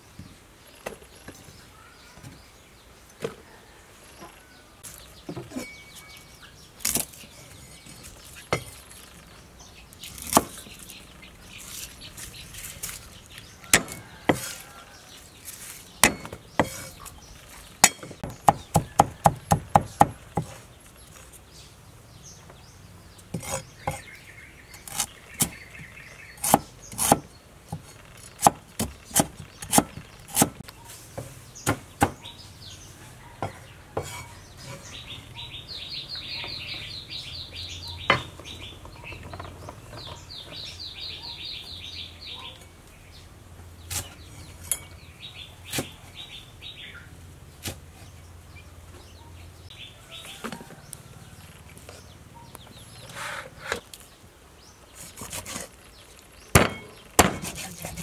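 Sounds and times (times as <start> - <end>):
cleaver chopping on wooden block: 13.7 - 14.6, 16.0 - 16.9, 17.8 - 20.6, 26.4 - 30.6, 31.6 - 32.2, 56.5 - 57.7
bird chirping rapidly: 28.2 - 42.7.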